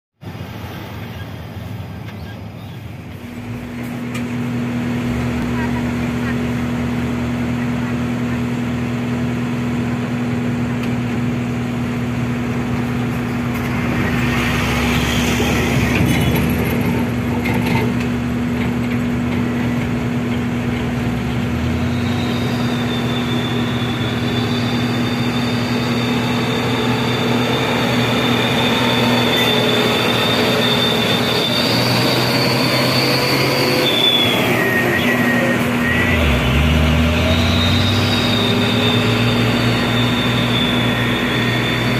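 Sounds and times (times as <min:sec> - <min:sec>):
engines humming: 0:00.2 - 0:41.9
high whine: 0:18.0 - 0:41.9.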